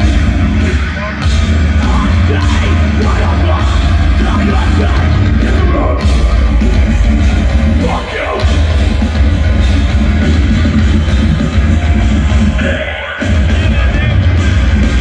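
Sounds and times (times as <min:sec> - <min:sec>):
bass: 0:00.0 - 0:15.0
distorted guitars: 0:00.0 - 0:15.0
drums: 0:00.0 - 0:15.0
person singing: 0:00.6 - 0:06.5.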